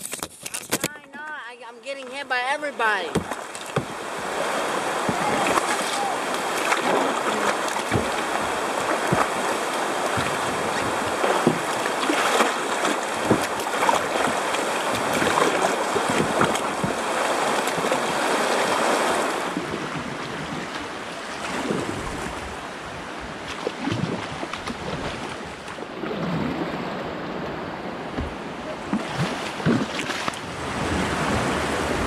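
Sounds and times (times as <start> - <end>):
river rapid rushing water: 2.8 - 32.0
small knocks on kayak hull: 3.1 - 4.0, 7.7 - 9.5, 10.1 - 17.0, 28.1 - 30.4.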